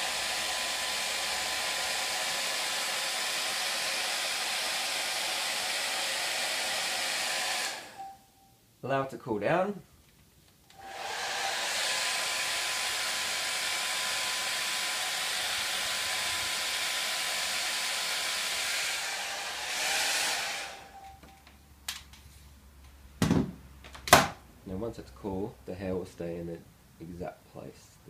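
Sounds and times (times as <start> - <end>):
hair dryer running: 0.0 - 8.2, 10.7 - 21.3.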